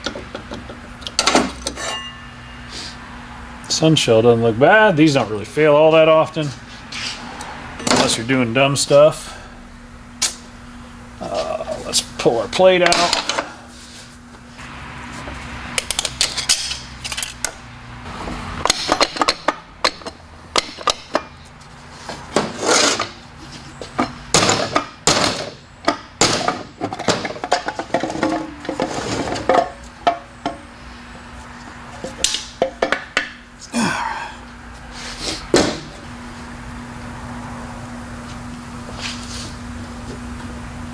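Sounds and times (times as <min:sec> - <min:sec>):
metal parts clinking and clanking: 0:00.0 - 0:02.2, 0:15.8 - 0:17.6.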